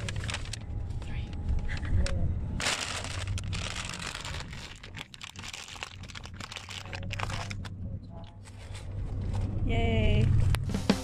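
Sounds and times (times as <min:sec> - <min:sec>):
paper bag crumpling: 0:00.0 - 0:00.6, 0:02.6 - 0:07.7
low engine hum: 0:00.0 - 0:11.0.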